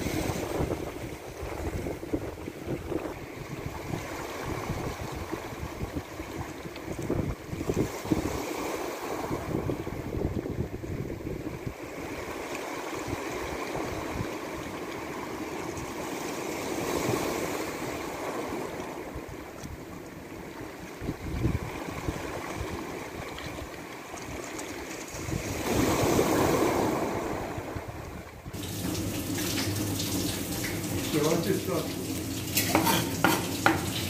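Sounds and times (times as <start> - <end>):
waves washing over pebbly shore: 11.7 - 19.4, 20.7 - 28.0.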